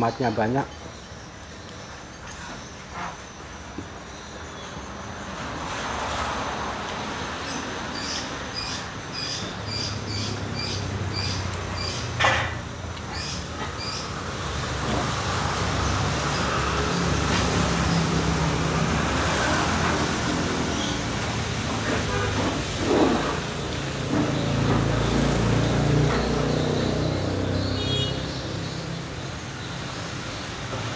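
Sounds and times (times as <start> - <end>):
vehicle engine humming: 10.2 - 29.6.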